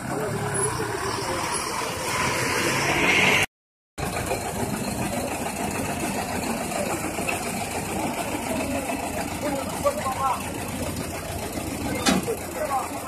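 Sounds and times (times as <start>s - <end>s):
engine idling: 4.0s - 13.0s.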